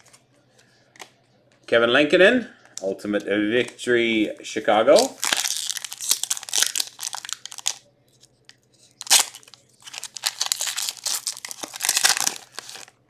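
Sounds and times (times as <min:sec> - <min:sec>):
wrapper crinkling: 0:05.0 - 0:07.8, 0:09.0 - 0:13.0
wrapper ripping: 0:05.0 - 0:07.8, 0:09.0 - 0:13.0.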